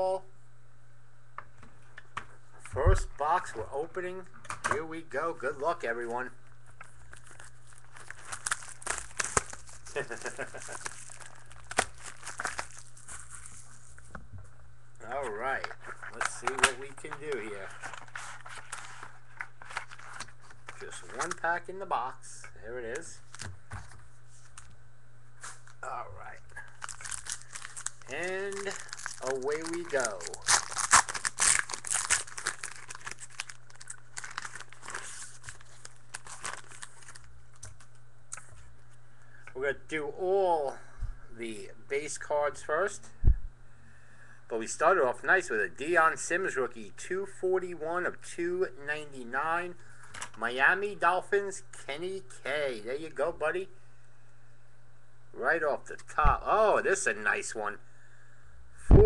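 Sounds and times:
plastic wrapping tearing and crinkling: 0:06.8 - 0:14.1, 0:15.6 - 0:21.4, 0:26.6 - 0:37.8.

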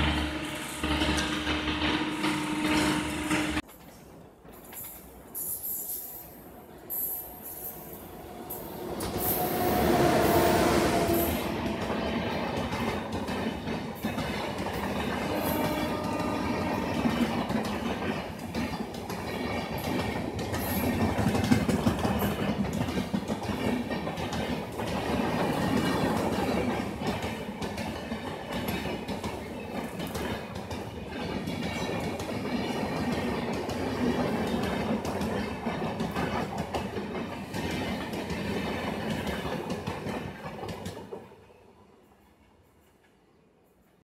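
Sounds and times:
train coaches rumbling: 0:00.0 - 0:42.3
wheels clicking over rail joints: 0:11.0 - 0:41.3.

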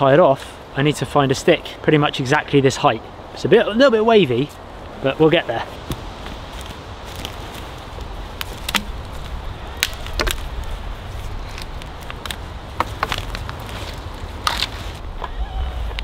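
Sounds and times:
dry twigs snapping: 0:05.8 - 0:15.0.

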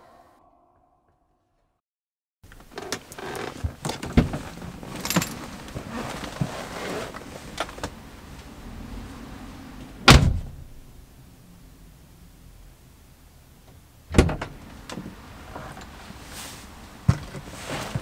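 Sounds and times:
clothing rustling on leather seat: 0:02.8 - 0:07.9, 0:15.5 - 0:18.0
car door shutting: 0:10.0 - 0:10.6.

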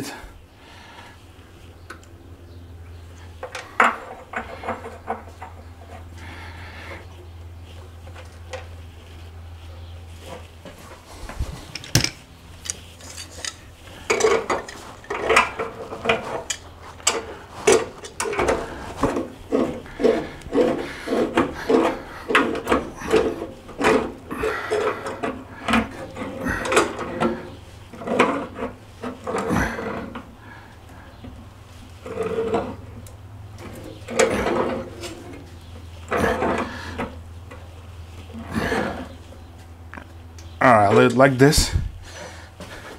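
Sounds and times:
rhythmic rasping rubbing strokes: 0:12.4 - 0:39.5.

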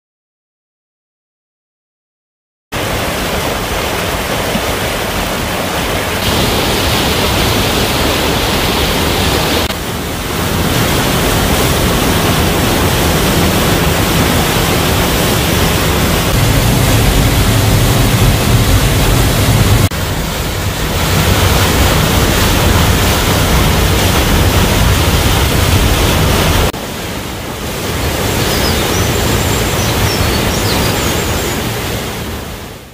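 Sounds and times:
waterfall rushing water: 0:02.8 - 0:32.9.

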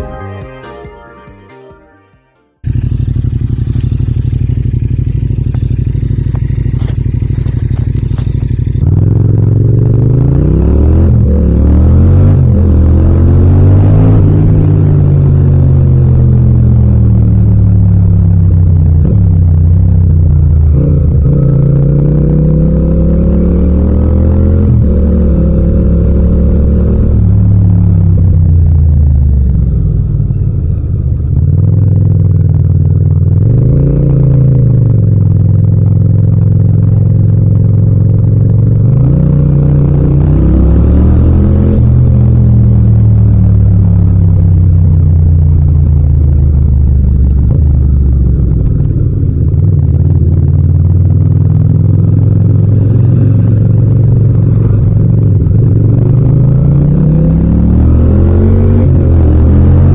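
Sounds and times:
motorcycle engine running: 0:02.6 - 0:59.9.

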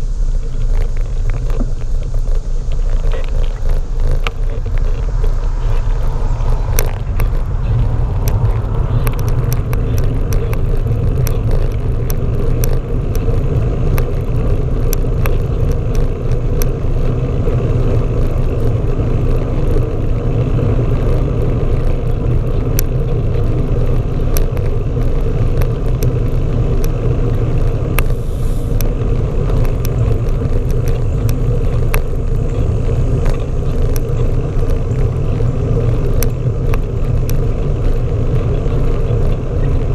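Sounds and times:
bicycle clicks and rattles: 0:00.0 - 0:39.9
road vibration rumble: 0:00.0 - 0:39.9
wind: 0:00.0 - 0:39.9.

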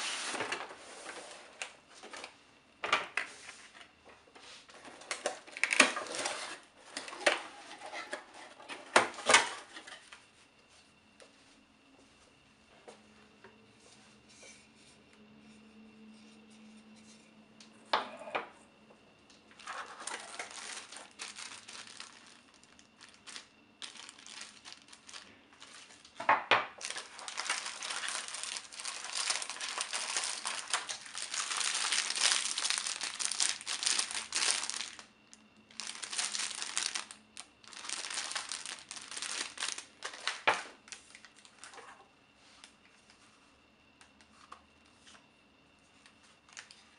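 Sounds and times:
plastic bags and cardboard crinkling: 0:00.0 - 0:02.4, 0:03.1 - 0:10.1, 0:19.4 - 0:42.8, 0:46.2 - 0:46.9.

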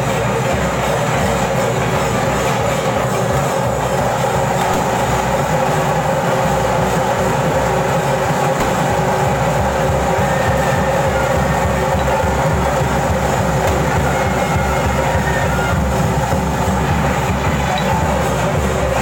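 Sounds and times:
held pipe tones: 0:00.0 - 0:19.0
rapid drumming: 0:00.0 - 0:19.0.

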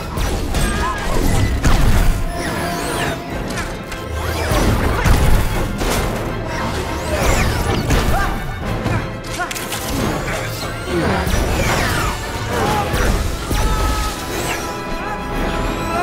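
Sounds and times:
film score: 0:00.0 - 0:16.0
gliding screeches: 0:00.6 - 0:05.1.

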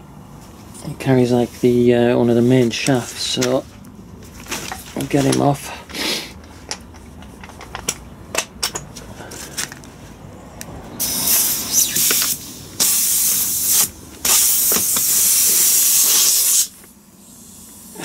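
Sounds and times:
air hiss: 0:11.0 - 0:18.0
pneumatic impact wrench: 0:11.0 - 0:18.0.

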